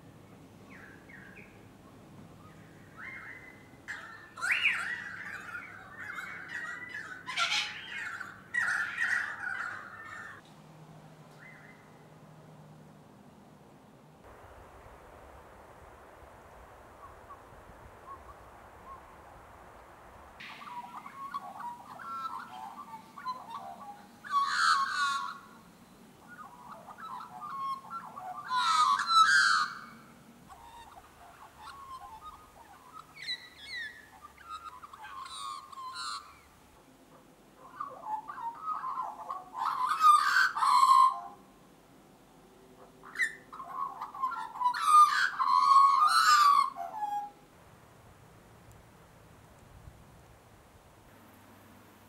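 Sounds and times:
magpies warbling: 2.4s - 10.4s, 16.9s - 36.6s, 37.6s - 41.4s, 42.9s - 47.4s.

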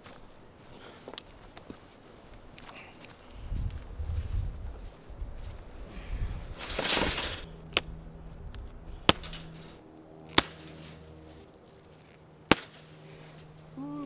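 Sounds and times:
wind rumble on microphone: 3.2s - 9.8s
cutters snipping twine: 6.6s - 14.0s
hay bale rustling crunch: 9.0s - 13.7s.

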